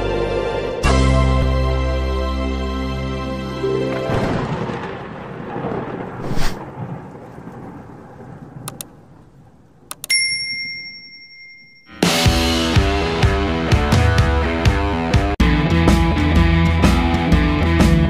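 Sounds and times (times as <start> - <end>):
rumbling thunder-like whoosh: 4.1 - 9.9
bright bell ding: 10.0 - 12.2.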